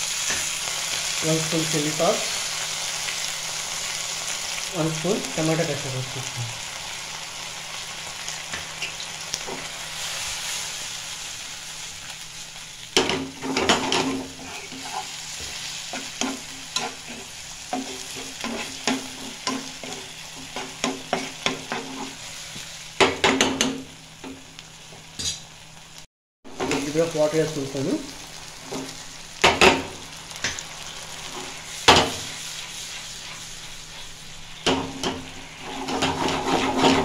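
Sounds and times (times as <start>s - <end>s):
vegetables sizzling in a frying pan: 0.0s - 37.0s
spatula stirring and scraping pan: 13.0s - 23.8s, 28.6s - 37.0s.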